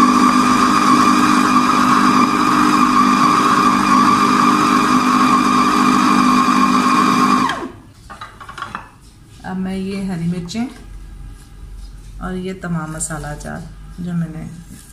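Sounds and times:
food chopper motor running: 0.0s - 7.7s.

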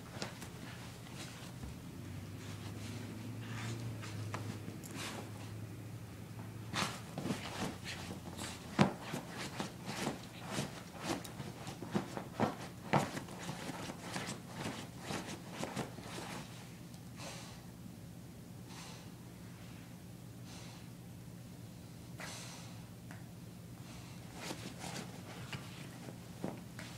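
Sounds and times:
puppy scratching fabric bed: 0.1s - 1.6s, 6.7s - 16.5s, 24.3s - 26.9s.

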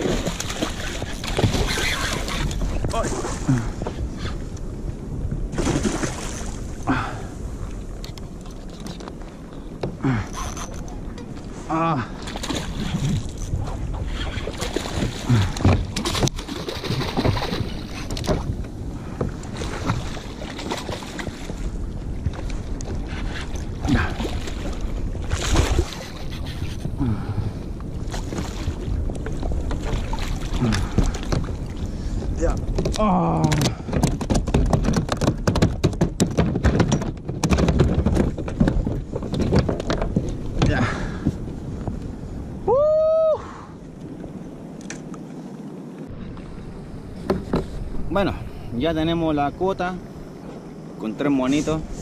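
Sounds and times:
water noise: 0.0s - 52.0s
wind rumbling on microphone: 0.0s - 52.0s
sharp knocks: 33.5s - 40.8s.

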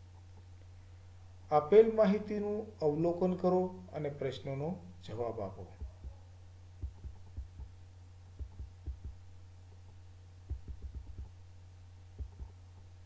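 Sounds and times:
steady low hum: 0.0s - 13.0s
soft low thumps: 5.7s - 13.0s.

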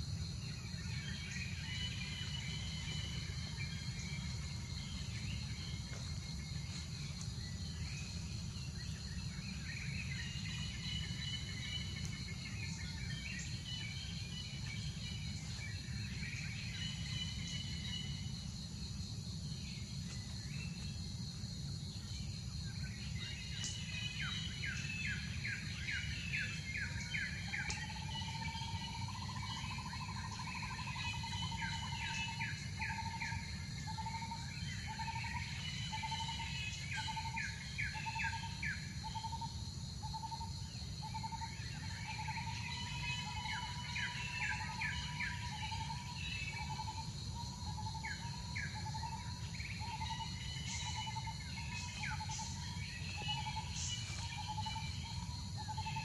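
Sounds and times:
high insect drone: 0.0s - 56.0s.

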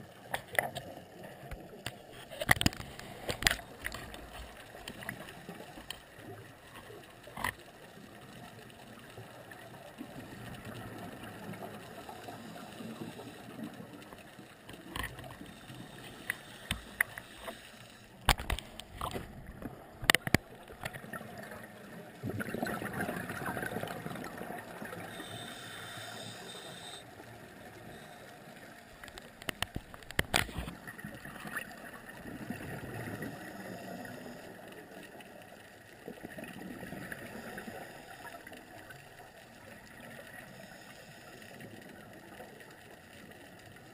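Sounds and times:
scuba regulator breathing: 11.7s - 13.8s, 15.3s - 18.5s, 24.9s - 28.7s, 33.2s - 34.8s, 40.4s - 41.6s
sharp clicks and knocks: 18.2s - 21.0s, 29.0s - 30.8s
exhaled bubbles rushing: 20.6s - 25.1s.

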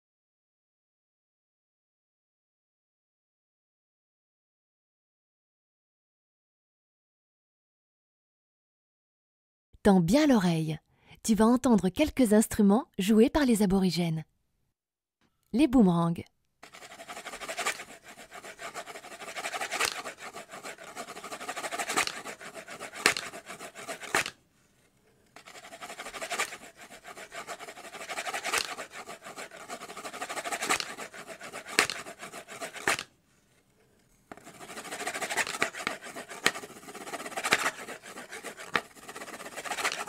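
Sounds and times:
wooden boomerangs clicking: 16.7s - 24.4s, 25.4s - 33.1s, 34.3s - 40.0s.

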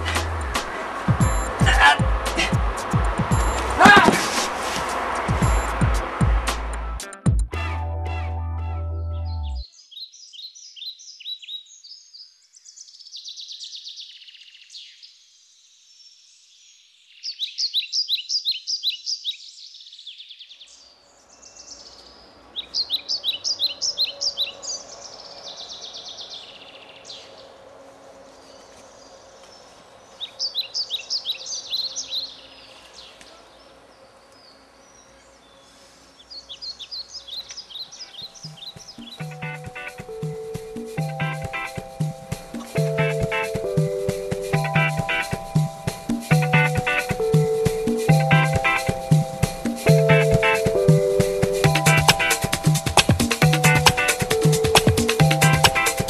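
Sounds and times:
high chirping trills: 1.2s - 3.9s, 5.4s - 6.1s, 34.2s - 56.0s.

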